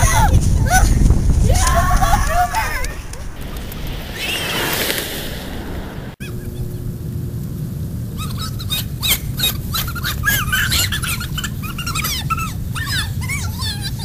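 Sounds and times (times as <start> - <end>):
low rumble: 0.0 - 9.1.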